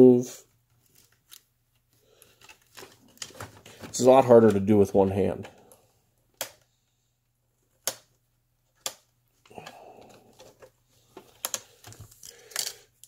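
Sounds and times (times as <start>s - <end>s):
sharp plastic clicks: 6.3s - 6.7s, 7.8s - 8.1s, 8.8s - 9.1s.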